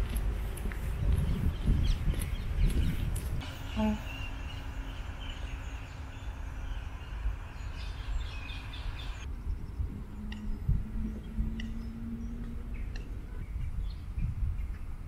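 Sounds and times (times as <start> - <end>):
steady low rumble: 0.0 - 15.0
short high bird calls: 3.4 - 9.3.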